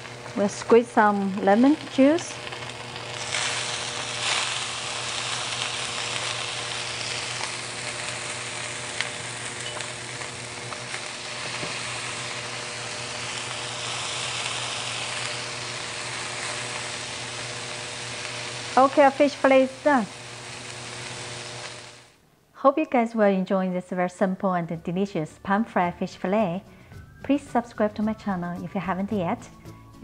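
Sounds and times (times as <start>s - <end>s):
oil spitting and crackling: 0.0s - 19.0s
fish sizzling in hot oil: 0.0s - 22.1s.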